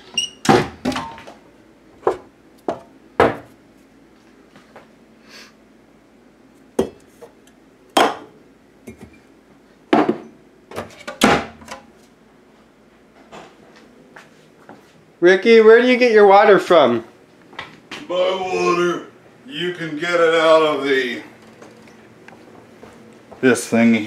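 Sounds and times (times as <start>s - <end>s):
cabinet doors opening and shutting: 0.0s - 1.3s, 10.0s - 11.8s.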